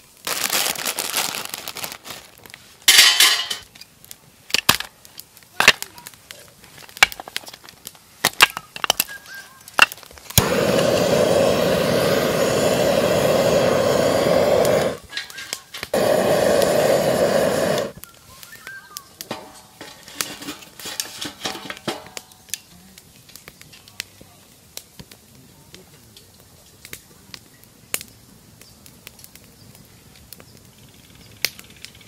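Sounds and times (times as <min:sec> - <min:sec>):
firewood knocking and clacking: 0:04.5 - 0:10.6, 0:19.2 - 0:22.6
loud steady rushing hiss: 0:10.3 - 0:18.0.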